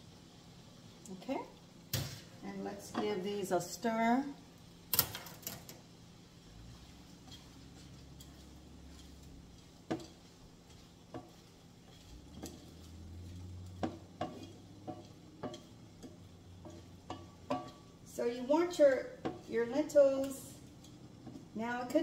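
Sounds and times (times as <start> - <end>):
spoon stirring lentils in a pot: 2.1 - 22.0
spoon clinking against pot: 13.7 - 17.9.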